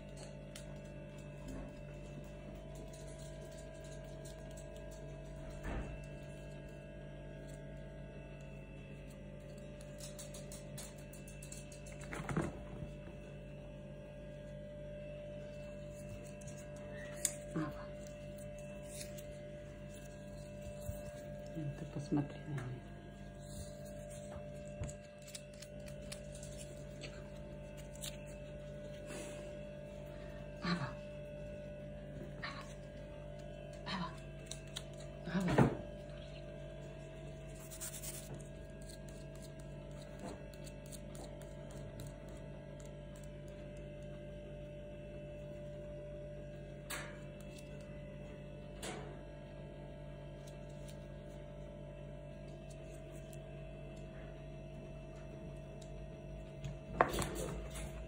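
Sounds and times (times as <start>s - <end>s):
electrical hum: 0.0s - 58.0s.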